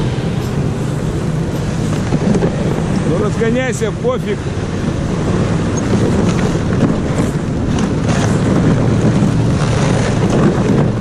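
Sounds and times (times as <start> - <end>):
snow tractor engine running: 0.0 - 11.0.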